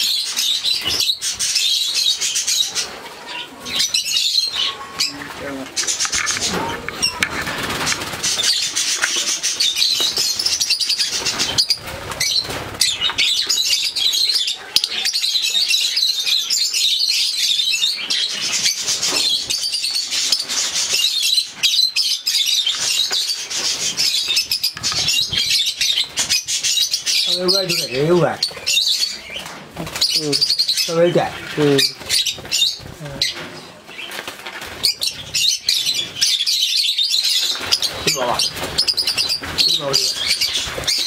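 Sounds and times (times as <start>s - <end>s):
lovebirds chattering and chirping: 0.0s - 41.0s
wing flapping: 5.0s - 13.6s, 31.3s - 36.1s, 37.4s - 41.0s.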